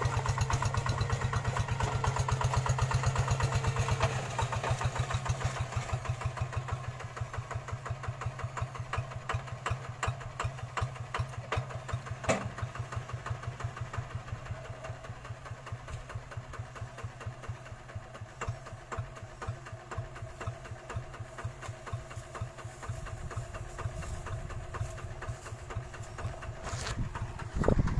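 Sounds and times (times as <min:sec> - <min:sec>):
diesel engine running: 0:00.0 - 0:27.9.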